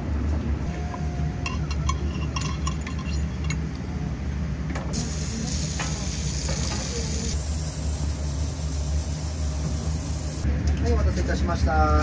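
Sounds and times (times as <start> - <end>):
tableware clinking: 1.4 - 3.7.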